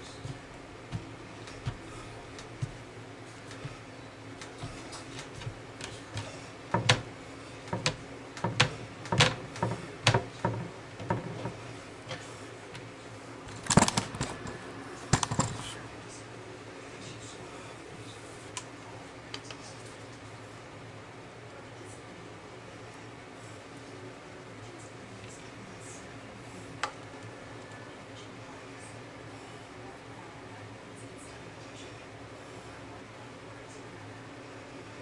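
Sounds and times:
faint steady hum: 0:00.0 - 0:35.0
objects knocking and clicking: 0:04.6 - 0:07.1, 0:07.7 - 0:12.2, 0:13.5 - 0:15.6.

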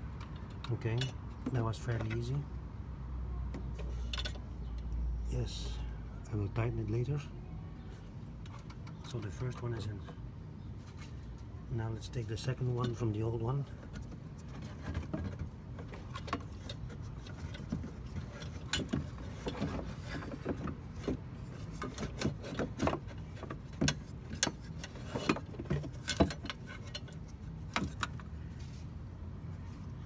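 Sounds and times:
metal parts clicking and knocking: 0:13.8 - 0:28.3.

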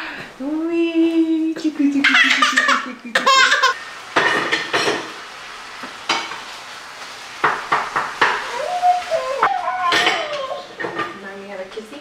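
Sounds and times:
steady hiss: 0:00.0 - 0:12.0
cutlery and dishes clinking: 0:04.2 - 0:05.2, 0:09.8 - 0:11.2.

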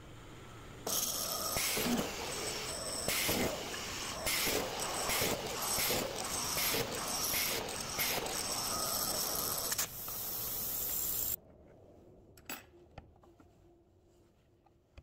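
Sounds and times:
mortising machine cutter running: 0:00.9 - 0:09.8.

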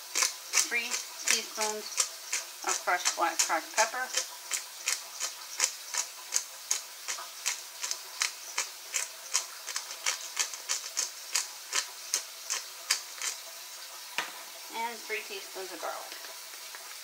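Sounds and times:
pepper grinder clicking: 0:00.0 - 0:13.4.

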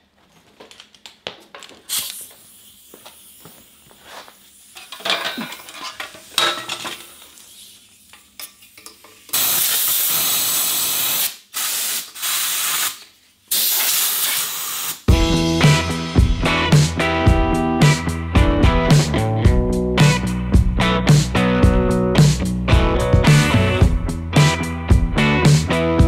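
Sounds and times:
welding arc hissing: 0:01.9 - 0:05.0, 0:09.3 - 0:15.1.

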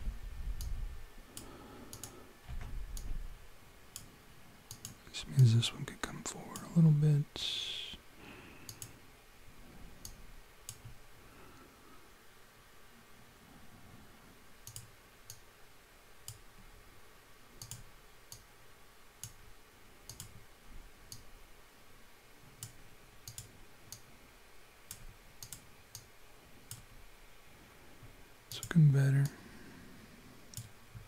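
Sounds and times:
mouse and keyboard clicks: 0:01.4 - 0:02.2.

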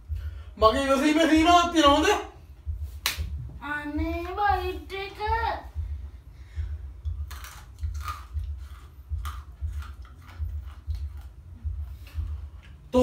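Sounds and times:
pulsing low hum: 0:00.0 - 0:13.0
chewing crunchy snack: 0:07.0 - 0:12.9.

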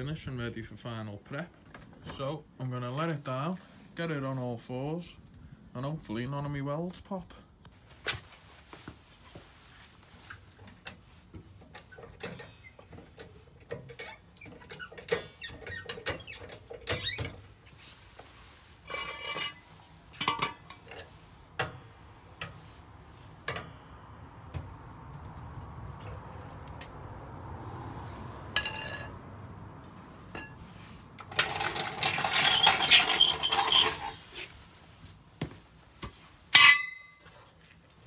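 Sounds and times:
car creaking as it settles: 0:29.8 - 0:34.4
trolley jack clicks and scrapes: 0:31.2 - 0:34.3.

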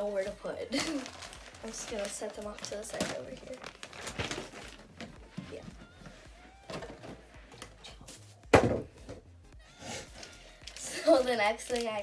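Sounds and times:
bags being handled: 0:00.0 - 0:07.4
loud thump: 0:08.5 - 0:09.2.

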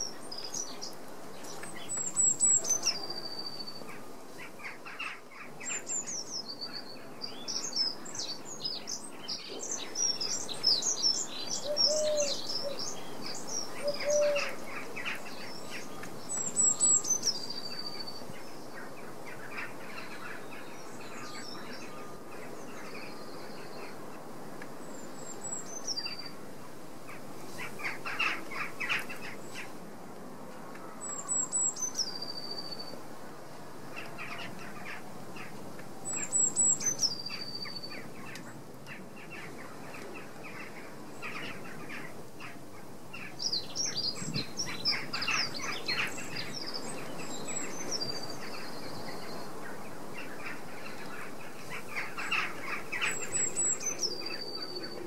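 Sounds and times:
small birds chirping and trilling: 0:00.0 - 0:24.0, 0:34.0 - 0:55.0
background hiss: 0:00.0 - 0:55.0
short low bird calls: 0:13.6 - 0:14.6.

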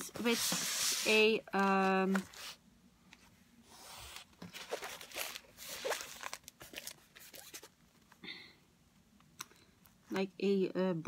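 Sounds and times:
paper and plastic packaging crinkling: 0:04.4 - 0:08.1.

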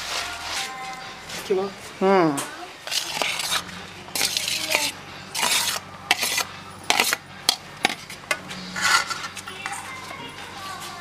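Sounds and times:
spoon scraping a steel bowl: 0:02.8 - 0:10.0.

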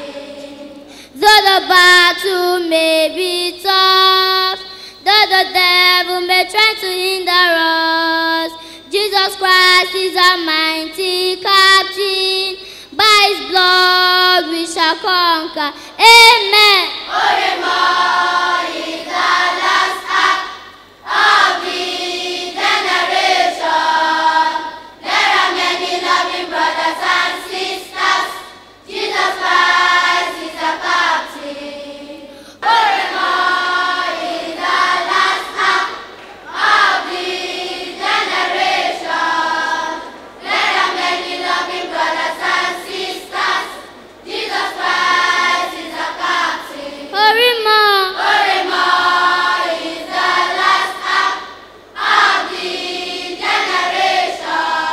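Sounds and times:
children's choir singing: 0:00.0 - 0:54.9
solo voice sliding in pitch: 0:47.2 - 0:48.3.

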